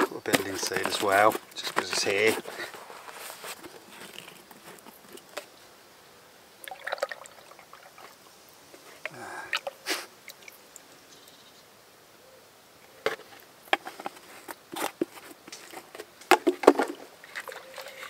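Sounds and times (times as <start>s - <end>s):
oil dribbling into bucket: 6.6s - 8.4s, 16.8s - 18.0s
plastic bottle clicks and knocks: 16.3s - 17.0s.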